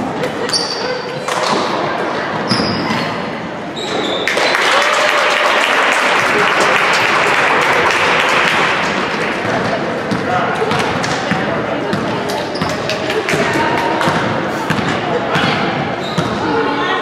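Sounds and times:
crowd applauding: 4.2s - 9.4s
sneaker squeaks on hardwood: 16.0s - 16.4s.

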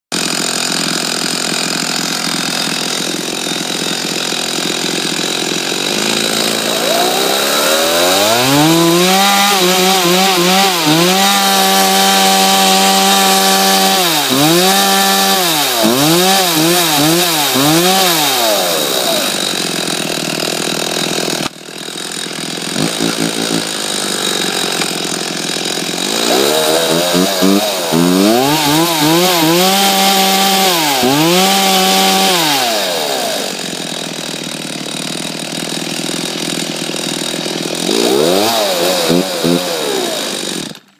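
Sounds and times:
chainsaw idling and revving: 0.1s - 40.9s.

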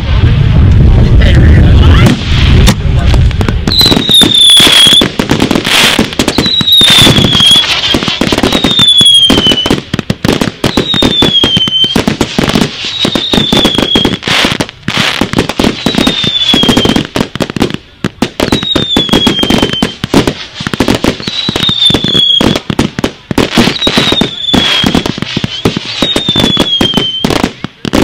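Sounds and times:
fireworks cracking and banging: 0.0s - 28.0s
falling firework whistle: 3.7s - 9.9s, 10.6s - 17.2s, 18.4s - 22.8s, 23.4s - 28.0s.

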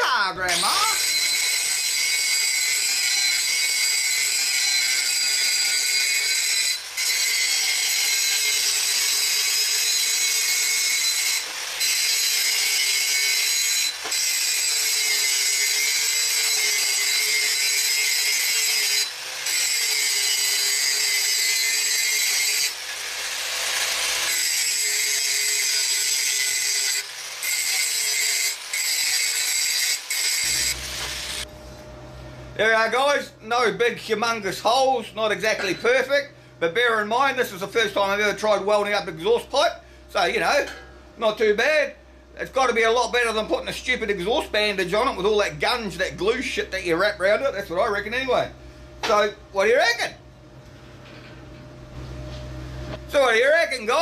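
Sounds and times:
angle grinder grinding metal: 0.0s - 31.5s.

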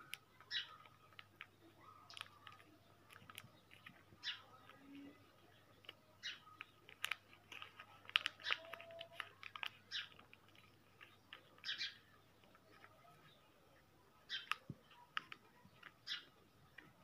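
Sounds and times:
paper crinkling and rustling: 0.0s - 13.4s, 14.4s - 17.0s
crisp paper snaps: 2.1s - 4.0s, 5.8s - 11.7s, 14.4s - 16.0s.

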